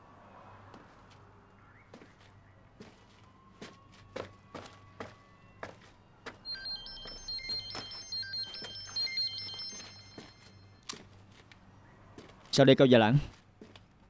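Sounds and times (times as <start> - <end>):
phone ringtone melody: 6.5 - 10.8.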